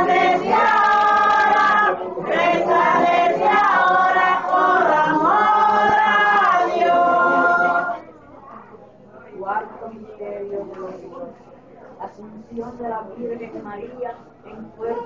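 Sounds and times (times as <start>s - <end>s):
women singing a hymn unaccompanied: 0.0s - 8.0s.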